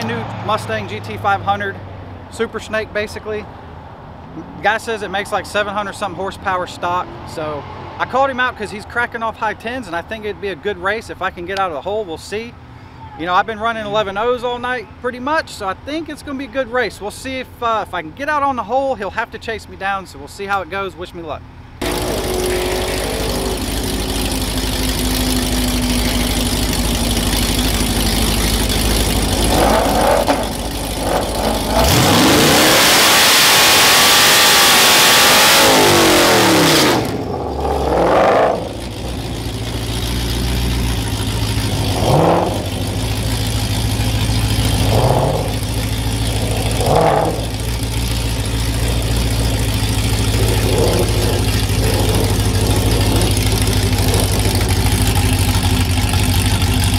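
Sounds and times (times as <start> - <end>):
truck engine idling and revving: 0.0 - 12.8, 13.4 - 56.9
tyres spinning and hissing: 21.8 - 55.8.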